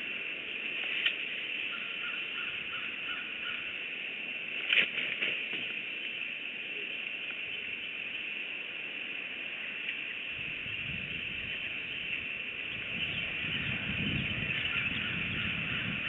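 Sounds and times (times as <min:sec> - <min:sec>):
steady high hiss: 0:00.0 - 0:16.0
heavy bird wingbeats: 0:04.6 - 0:05.8.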